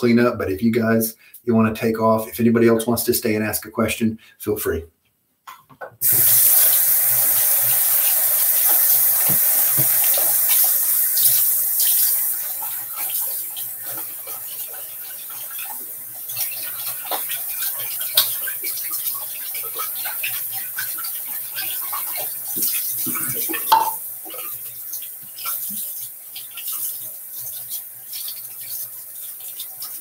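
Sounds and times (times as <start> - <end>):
tap water running into basin: 6.0 - 30.0
items knocking in sink: 22.6 - 24.0.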